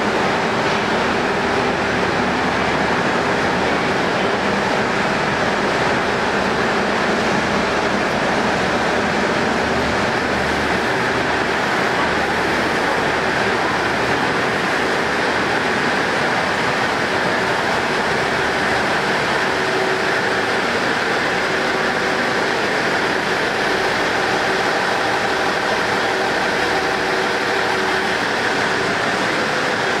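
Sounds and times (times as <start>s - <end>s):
diesel railcar engine running: 0.0s - 30.0s.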